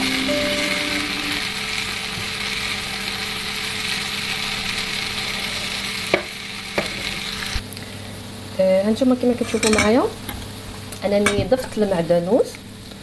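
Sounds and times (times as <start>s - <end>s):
potatoes sizzling in oil: 0.0s - 7.6s.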